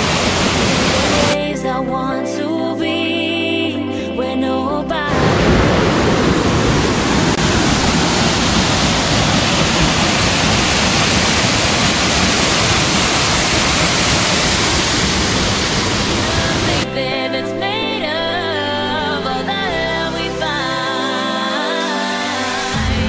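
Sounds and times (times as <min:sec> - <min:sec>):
waterfall rushing into pool: 0:00.0 - 0:01.4, 0:05.1 - 0:16.9.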